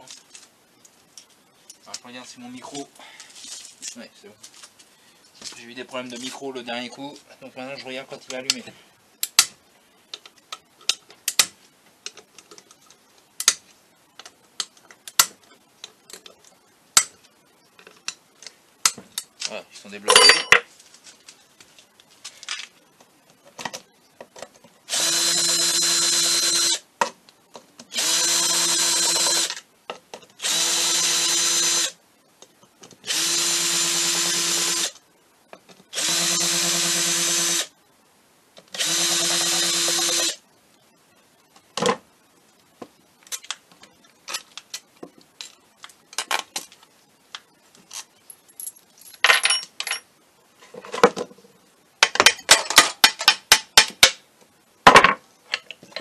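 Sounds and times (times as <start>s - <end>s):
cordless drill whining: 24.9s - 26.8s, 27.9s - 29.6s, 30.4s - 31.9s, 33.1s - 35.0s, 36.0s - 37.7s, 38.8s - 40.4s.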